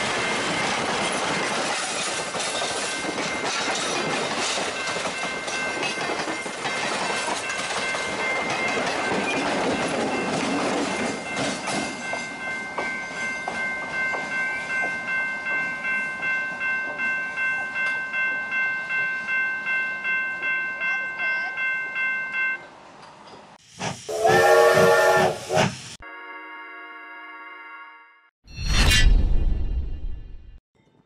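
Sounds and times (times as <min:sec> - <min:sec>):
train wheels clattering: 0:00.0 - 0:15.0.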